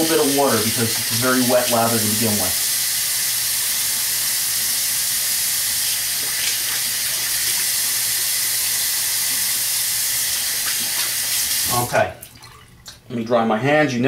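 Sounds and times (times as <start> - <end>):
sink tap running: 0.0 - 13.0
small water splashes: 12.1 - 13.0.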